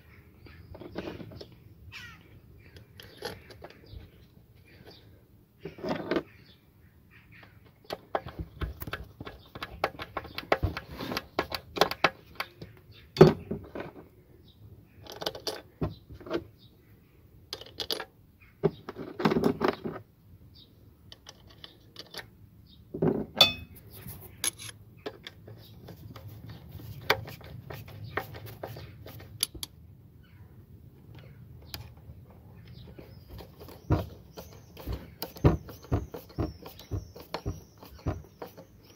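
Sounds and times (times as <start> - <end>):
metal tools clinking: 23.4 - 24.8.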